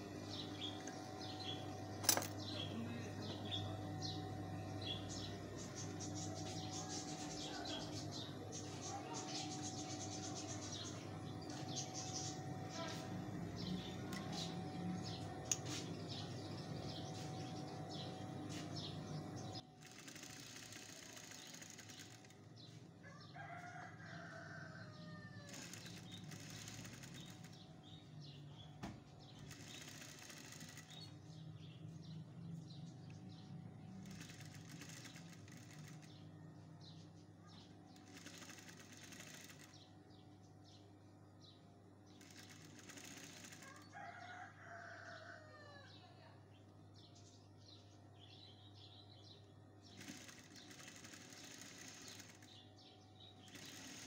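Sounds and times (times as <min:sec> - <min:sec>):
sewing machine humming: 0:00.0 - 0:22.8, 0:25.4 - 0:28.0, 0:29.3 - 0:31.2, 0:33.7 - 0:36.3, 0:37.9 - 0:39.9, 0:42.1 - 0:44.0, 0:49.9 - 0:54.0
rooster crowing: 0:23.0 - 0:26.7, 0:42.4 - 0:46.1.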